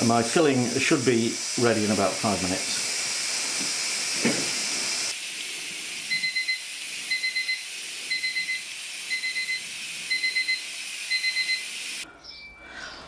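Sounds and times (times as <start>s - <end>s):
steady high hiss: 0.0s - 12.0s
kitchen timer beeping: 6.1s - 11.7s.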